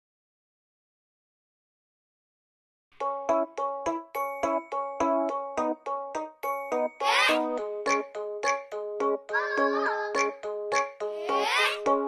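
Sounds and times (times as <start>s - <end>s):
chiming music: 3.0s - 12.0s.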